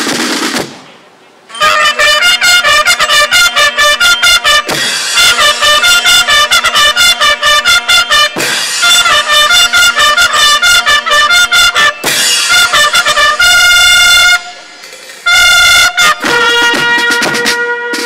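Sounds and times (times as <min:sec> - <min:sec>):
brass band playing short notes: 0:01.5 - 0:18.0
brass long held chords: 0:01.5 - 0:18.0.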